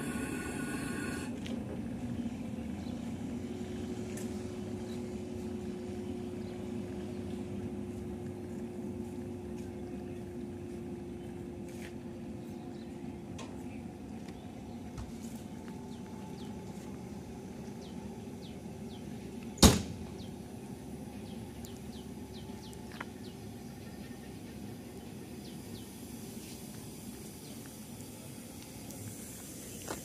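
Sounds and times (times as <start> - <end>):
electric locomotive humming: 0.0 - 30.0
small birds chirping: 21.1 - 26.7.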